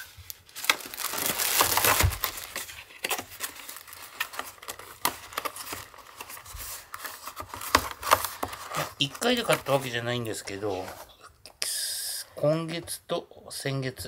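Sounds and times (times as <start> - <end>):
plastic packaging crinkling: 0.0 - 11.0
cardboard box rustling and tapping: 4.2 - 9.8.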